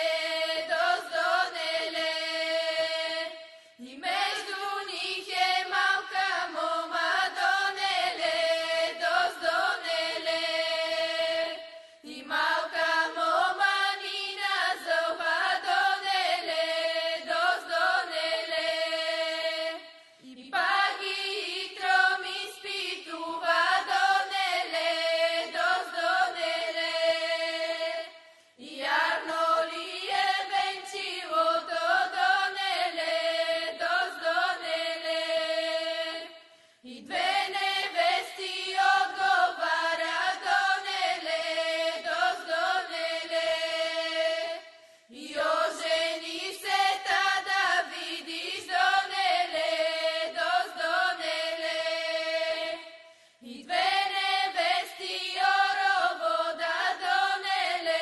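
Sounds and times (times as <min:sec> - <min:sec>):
women singing folk song: 0:00.0 - 0:58.0
singers breathing: 0:03.4 - 0:03.8, 0:11.7 - 0:12.1, 0:19.9 - 0:20.2, 0:28.2 - 0:28.6, 0:36.4 - 0:36.9, 0:44.7 - 0:45.2, 0:52.9 - 0:53.5.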